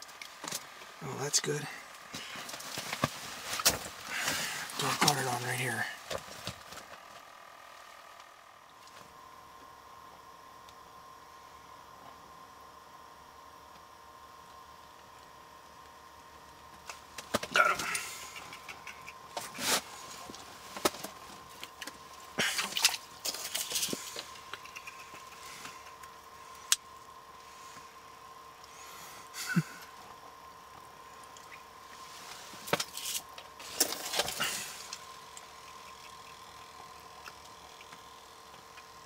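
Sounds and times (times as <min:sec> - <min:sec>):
faint steady hum: 0:00.0 - 0:39.0
fishing gear clicks and rustling: 0:22.6 - 0:25.4.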